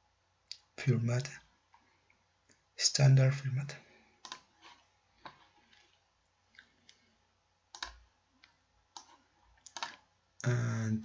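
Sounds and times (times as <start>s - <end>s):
computer mouse clicks: 4.2s - 6.0s, 7.7s - 10.1s.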